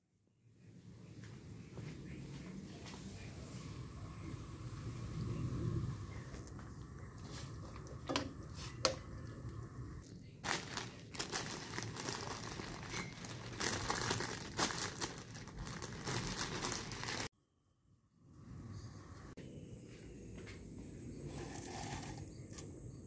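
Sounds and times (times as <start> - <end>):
plastic bag crinkling: 10.3 - 17.3.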